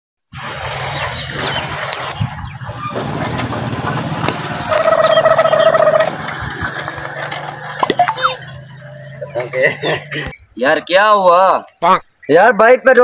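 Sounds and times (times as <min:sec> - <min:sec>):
small motorcycle engine: 0:00.4 - 0:10.2.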